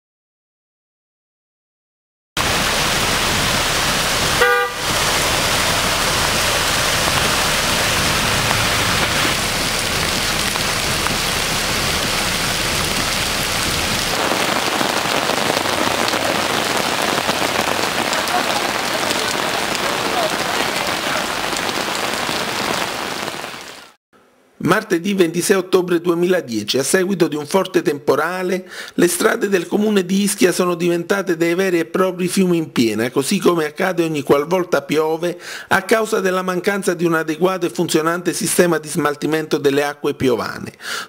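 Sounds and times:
floodwater rushing: 2.4 - 24.0
heavy rain: 2.4 - 24.0
car horn toot: 4.4 - 5.0.

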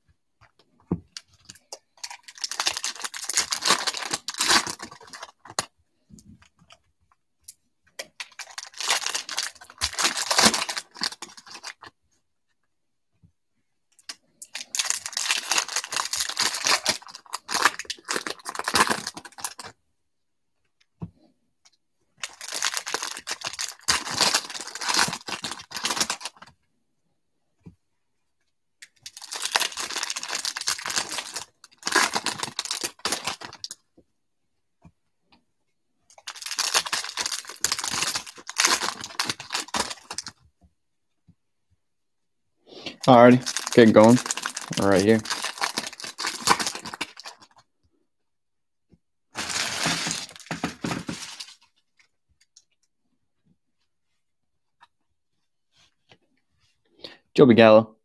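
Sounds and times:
foil wrappers crinkling and tearing: 2.0 - 5.7, 8.2 - 11.9, 14.5 - 19.7, 22.2 - 26.5, 29.0 - 33.8, 36.2 - 40.3, 43.0 - 47.6, 49.4 - 51.7.

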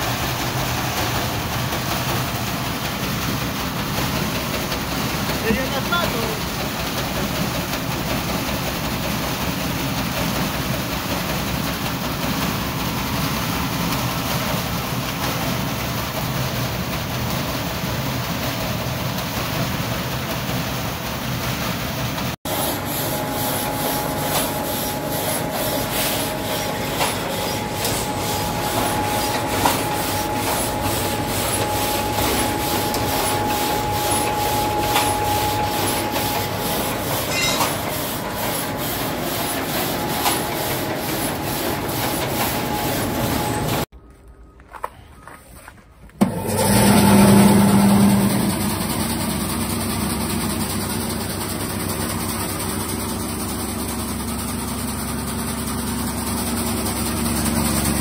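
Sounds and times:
steady whine: 22.6 - 43.9.

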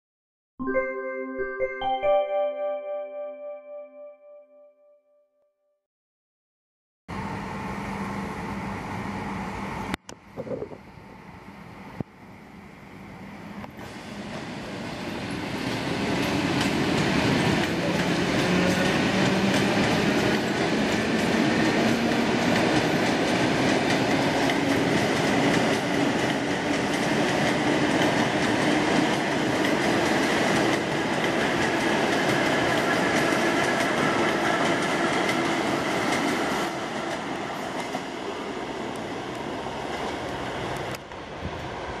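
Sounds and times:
train wheels on rails: 13.3 - 42.0.

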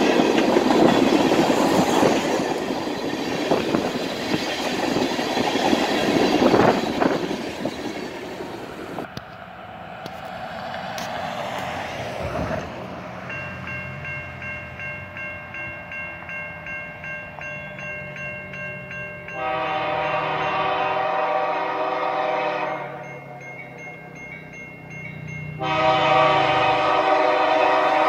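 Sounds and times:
train rumbling: 0.0 - 28.0
bell dinging rapidly: 13.3 - 19.4, 23.0 - 25.6
train horn blast: 19.4 - 23.2, 25.6 - 28.0.

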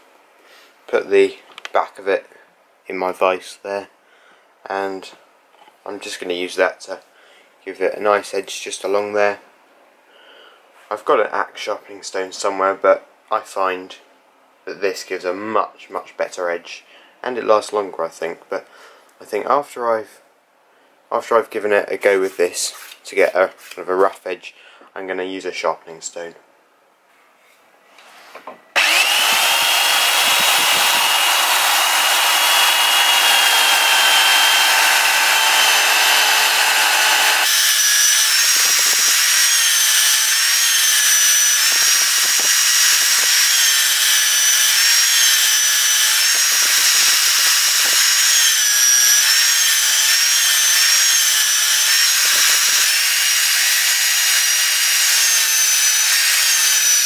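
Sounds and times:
steel blade grinding on sanding belt: 28.8 - 53.0
belt sander whining: 28.8 - 57.0.

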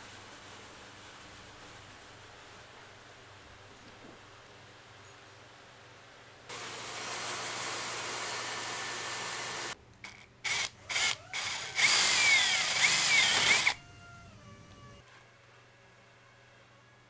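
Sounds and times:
drill boring into plastic: 6.5 - 13.8
drill bit squealing: 10.5 - 13.8.

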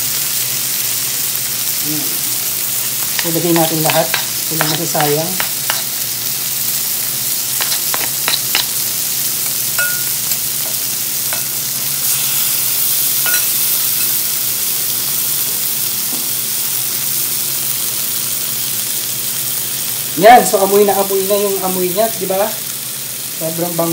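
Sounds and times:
food sizzling on hot plate: 0.0 - 23.9
spatula scraping and tapping plate: 3.2 - 5.9, 7.6 - 8.7.

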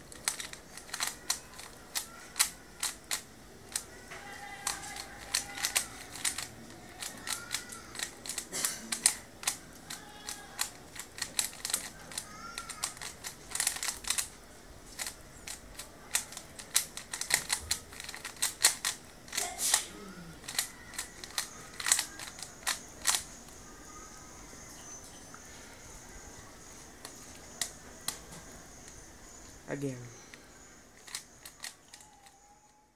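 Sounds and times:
puzzle cube layers clicking: 9.0 - 14.3, 15.0 - 19.0.

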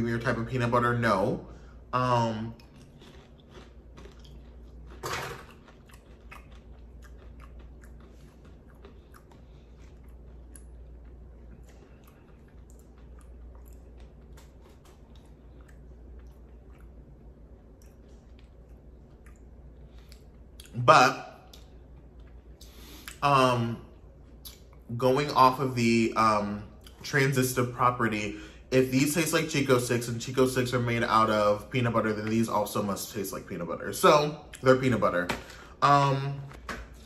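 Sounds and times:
person chewing popcorn: 2.3 - 20.9.

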